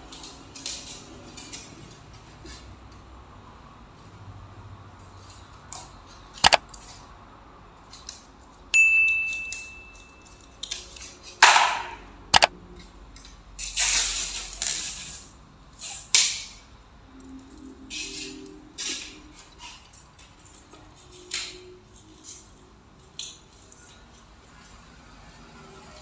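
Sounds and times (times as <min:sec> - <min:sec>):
bell ding: 0:08.8 - 0:10.2.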